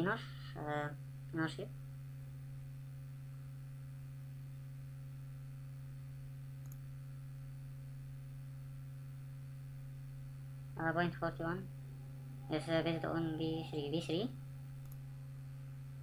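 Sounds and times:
low electrical hum: 0.0 - 16.0
faint mouse click: 6.6 - 6.8, 14.8 - 15.0.

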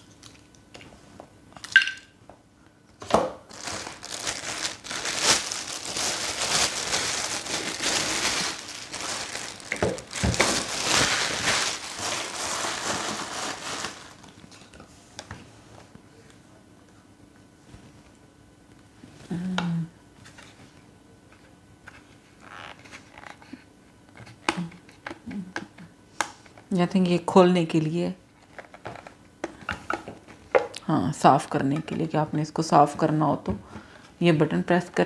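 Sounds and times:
plastic bag crinkling: 3.4 - 14.6.

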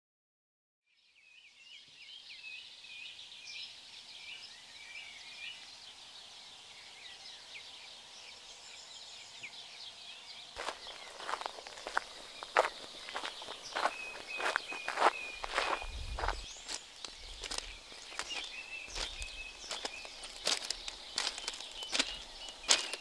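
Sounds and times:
birds chirping: 1.5 - 23.0
footsteps crunching on stones: 10.6 - 23.0.

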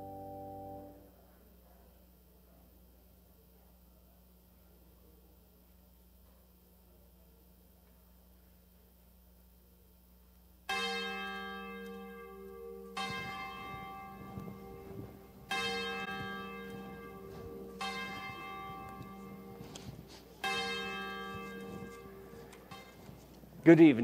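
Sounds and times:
church bells tolling: 0.0 - 1.1, 10.7 - 23.2.

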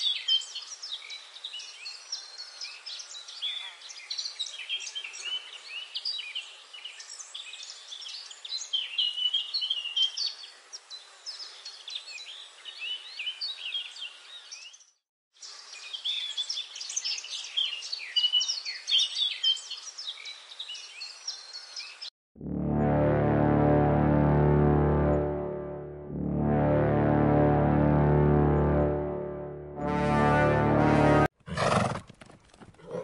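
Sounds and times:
small birds chirping and singing: 0.0 - 22.1.

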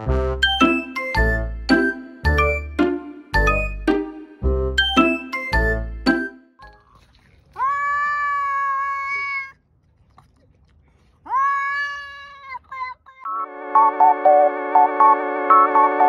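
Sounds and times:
cat yowling: 7.6 - 9.6, 11.3 - 13.1.

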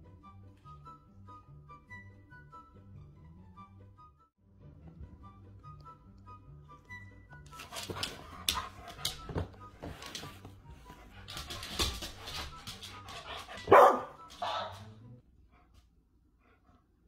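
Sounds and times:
dog barking: 13.6 - 14.9.

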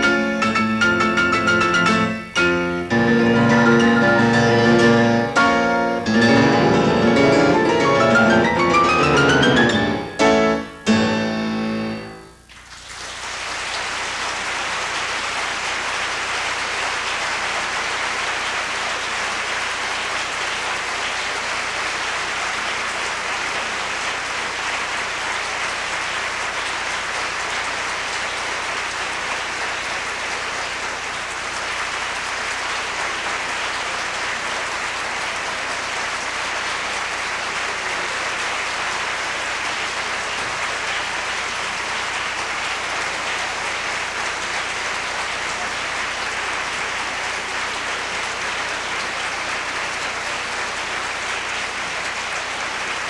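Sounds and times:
audience applause: 0.0 - 10.7, 12.6 - 53.0
piano chord: 0.0 - 12.4.

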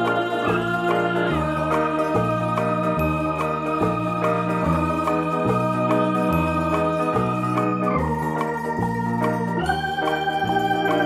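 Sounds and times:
bass line: 0.0 - 11.0
organ-like keyboard music: 0.0 - 11.0.

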